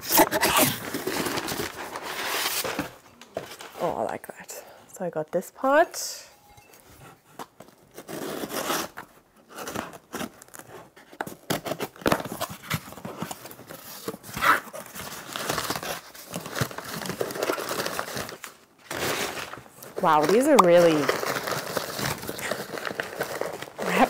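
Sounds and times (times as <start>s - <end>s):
packing paper crinkling and tearing: 0.0s - 3.0s, 7.7s - 24.0s.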